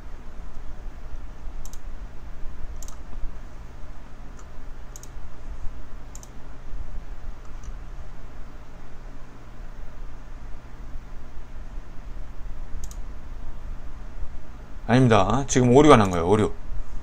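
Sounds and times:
steady low hum: 0:00.0 - 0:17.0
computer mouse double clicks: 0:06.1 - 0:06.3.

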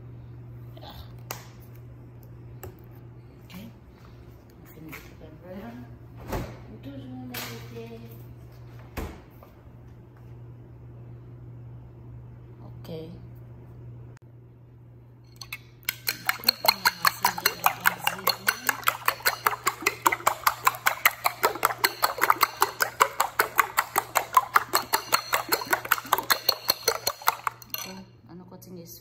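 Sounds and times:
spoon clicking against bowl: 0:15.3 - 0:28.0.

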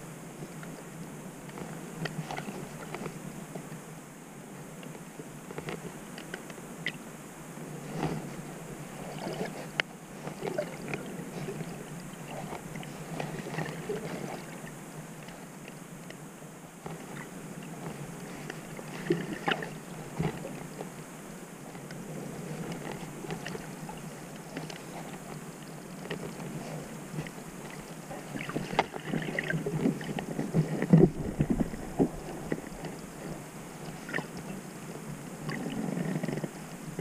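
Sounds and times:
small clicks and crackles: 0:00.4 - 0:03.9, 0:04.7 - 0:07.0, 0:07.8 - 0:37.0
underwater hiss: 0:18.1 - 0:20.7, 0:26.5 - 0:37.0.

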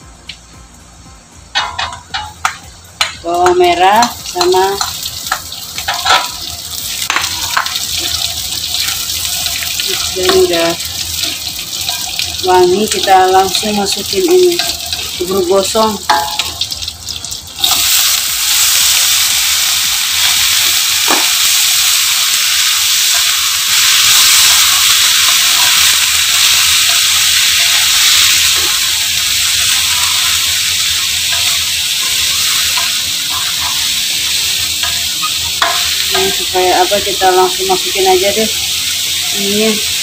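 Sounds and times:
vegetables sizzling in hot oil: 0:01.5 - 0:40.0
spatula stirring in wok: 0:23.8 - 0:36.4.

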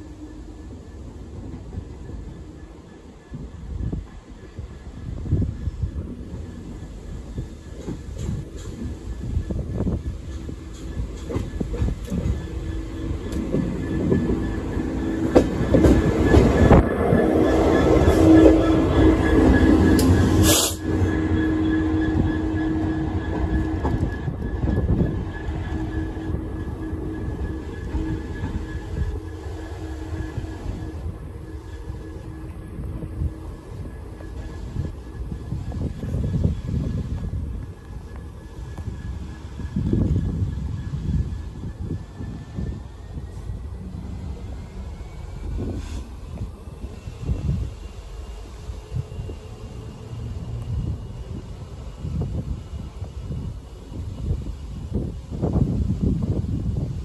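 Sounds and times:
diesel locomotive engine: 0:00.0 - 0:57.0
wind gusting on microphone: 0:00.7 - 0:57.0
short hiss: 0:20.4 - 0:20.8.

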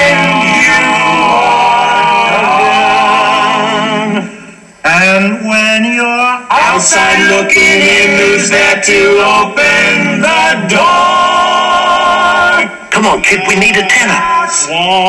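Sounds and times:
men singing in harmony: 0:00.0 - 0:15.0.

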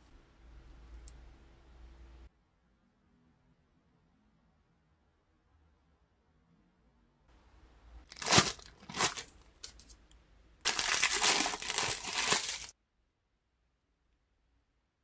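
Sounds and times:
packaging wrap crinkling: 0:08.1 - 0:10.0, 0:10.7 - 0:12.7.

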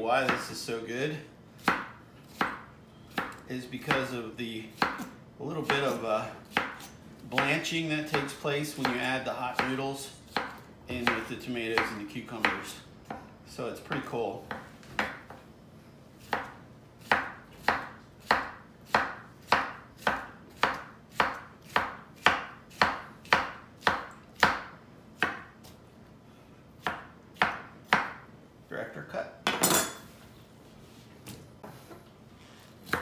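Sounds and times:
knife chopping on wooden board: 0:01.6 - 0:04.1, 0:04.7 - 0:13.3, 0:13.9 - 0:15.4, 0:16.2 - 0:25.8, 0:26.8 - 0:28.2.

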